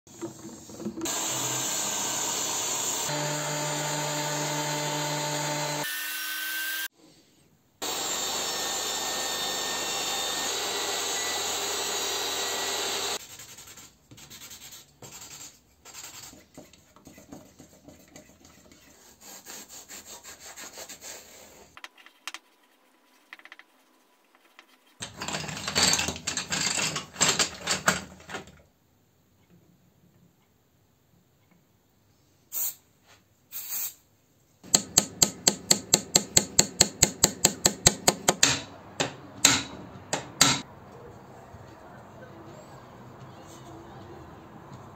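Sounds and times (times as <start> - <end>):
power tool running: 1.0 - 6.9, 7.8 - 13.2
thickness planer running: 1.1 - 5.8, 7.8 - 13.2
brush strokes: 13.2 - 21.8
rubbing strokes on wood: 13.2 - 21.8.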